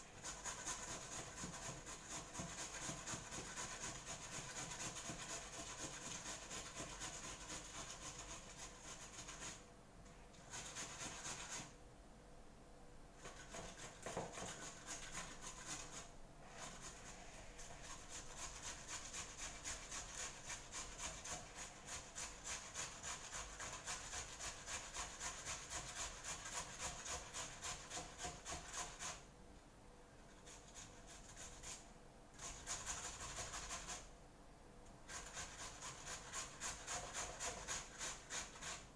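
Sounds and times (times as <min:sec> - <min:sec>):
potato masher scraping in bowl: 0:00.0 - 0:09.7, 0:10.4 - 0:11.8, 0:13.2 - 0:29.3, 0:32.4 - 0:34.1, 0:35.0 - 0:38.9.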